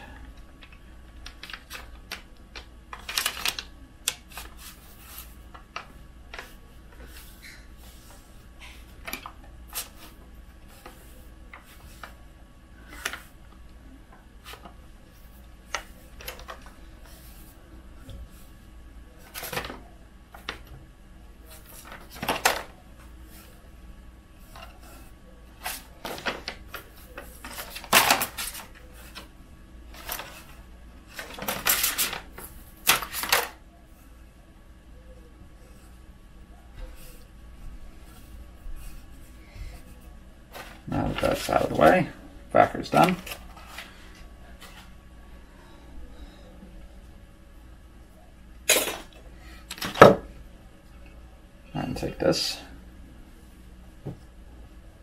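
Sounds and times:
backing paper crinkling: 0:00.6 - 0:12.2, 0:24.4 - 0:29.3, 0:29.9 - 0:33.6, 0:38.0 - 0:42.0
paper backing peeling crackles: 0:00.6 - 0:13.4, 0:24.4 - 0:29.3, 0:29.9 - 0:33.6, 0:38.0 - 0:44.9.

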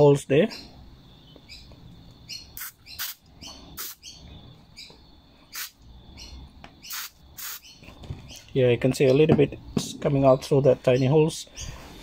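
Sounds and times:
bird chirping: 0:00.0 - 0:12.0
aerosol spray squirts: 0:02.6 - 0:03.2, 0:03.8 - 0:04.0, 0:05.6 - 0:05.8, 0:06.9 - 0:07.6.

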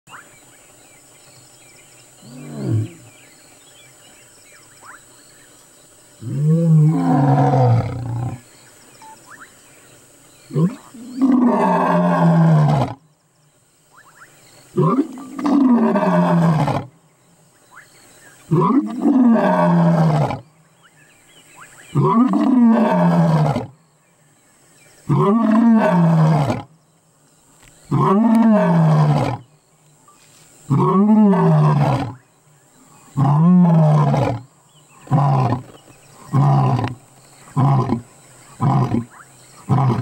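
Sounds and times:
lion roaring: 0:06.2 - 0:08.4.

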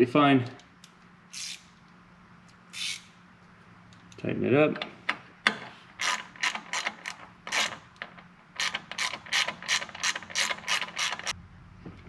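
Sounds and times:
socket ratchet clicking: 0:02.7 - 0:03.1, 0:05.5 - 0:11.4.

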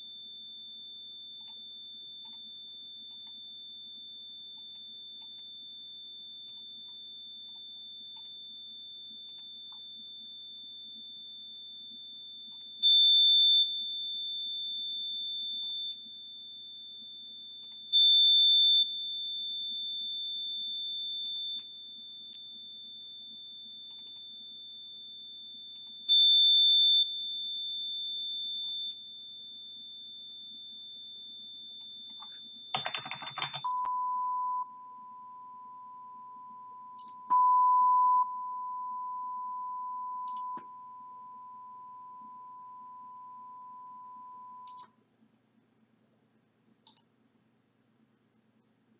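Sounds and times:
high-pitched sine test tone: 0:00.0 - 0:32.8, 0:33.6 - 0:44.9
lower steady tone: 0:33.6 - 0:45.0
faint clicks: 0:46.8 - 0:47.1.

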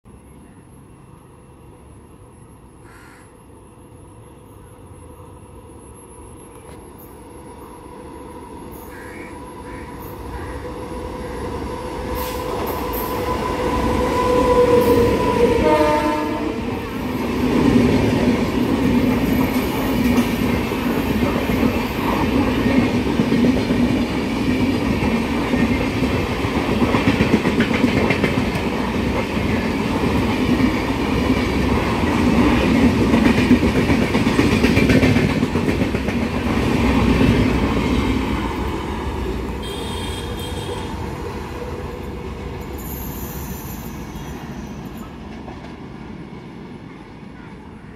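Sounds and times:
train coaches rumbling past: 0:00.1 - 0:47.9
locomotive horn blast: 0:14.6 - 0:16.7, 0:39.6 - 0:41.0.

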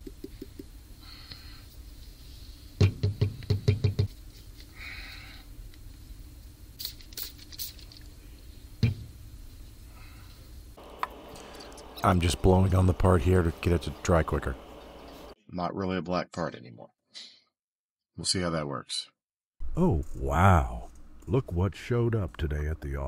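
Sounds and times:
knocks and clicks of small objects: 0:00.0 - 0:00.8.

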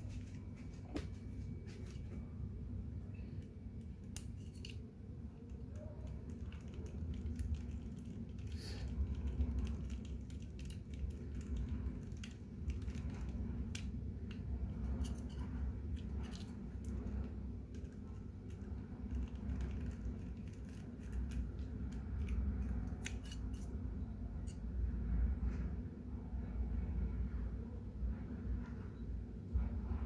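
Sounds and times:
steady low hum: 0:00.0 - 0:30.0
clicks and scrapes of small parts: 0:03.2 - 0:24.7.

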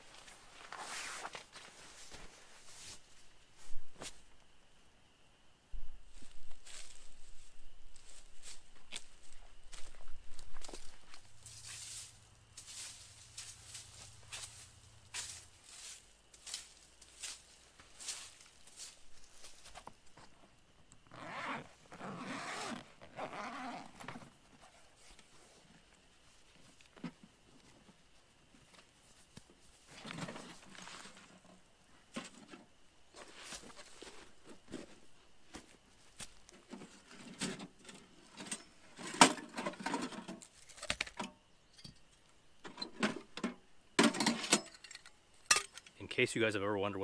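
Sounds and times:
zipper being unzipped: 0:21.1 - 0:24.1
metal stove parts clinking: 0:44.0 - 0:46.0.

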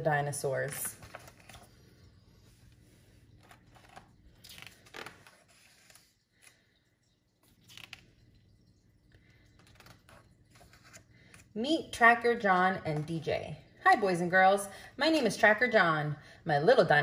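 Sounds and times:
book pages rustling: 0:00.7 - 0:02.5, 0:03.4 - 0:06.6, 0:09.6 - 0:11.5.

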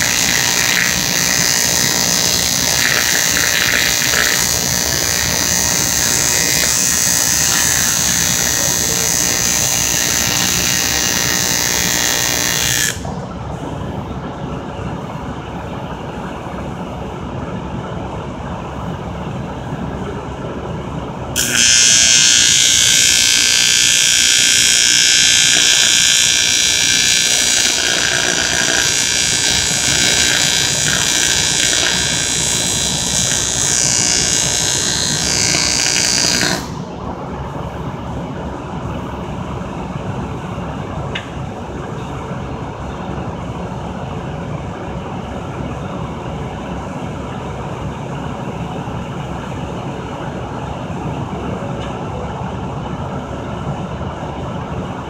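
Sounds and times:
welding arc hissing: 0:00.0 - 0:13.1, 0:21.4 - 0:36.9.

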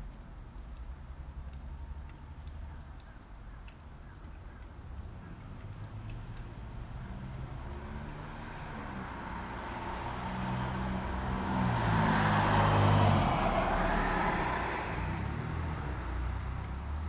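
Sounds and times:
vehicle passing by: 0:05.4 - 0:17.0.

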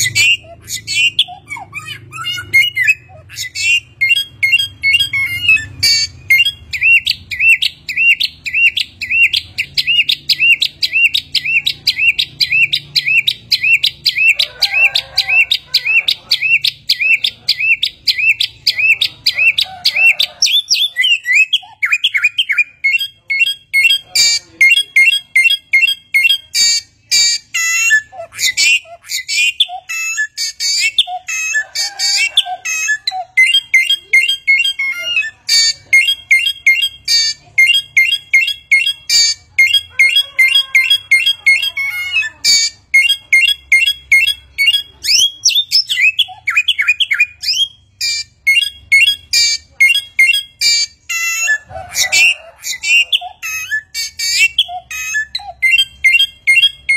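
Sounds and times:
bird singing whistled notes: 0:00.0 - 0:56.9.

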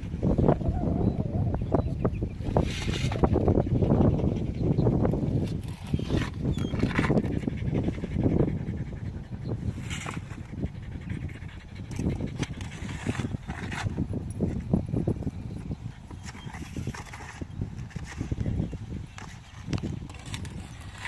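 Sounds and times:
hoe scraping and sloshing wet concrete: 0:20.1 - 0:21.0.

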